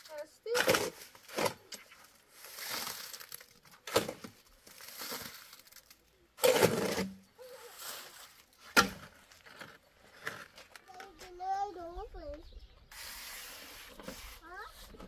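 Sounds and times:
shovel scraping wet cement: 0.5 - 5.6, 6.4 - 10.6.

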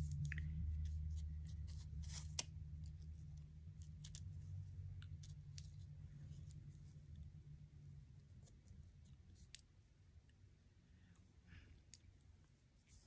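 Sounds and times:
faint paper rustling: 0.0 - 7.3
steady low hum: 0.0 - 13.0.

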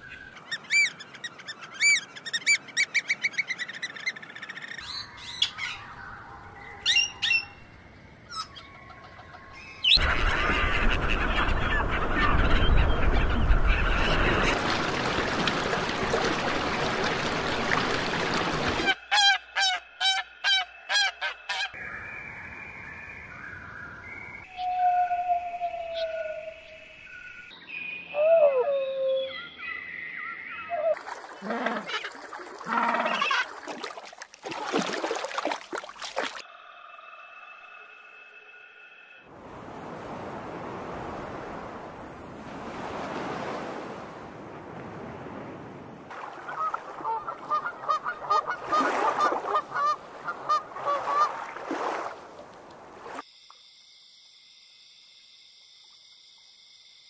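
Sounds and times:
whistled bird calls: 0.0 - 10.0, 19.2 - 31.0
water splashing: 10.0 - 19.1, 30.9 - 36.5, 39.5 - 53.2
waterfowl honking: 18.8 - 21.8, 46.2 - 51.5.

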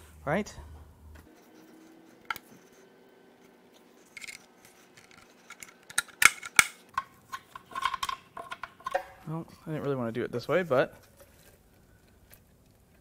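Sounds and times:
metal tools clicking and tapping: 5.0 - 9.2.

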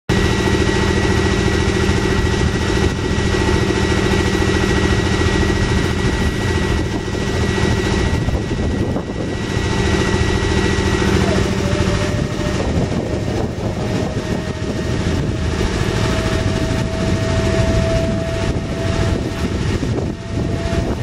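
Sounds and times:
engine idling: 0.1 - 21.0
thin high whine: 0.1 - 21.0.

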